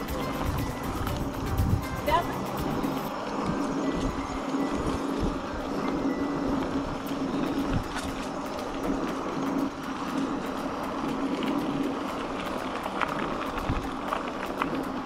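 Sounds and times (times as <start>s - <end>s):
bike tyres rolling on gravel: 0.0s - 15.0s.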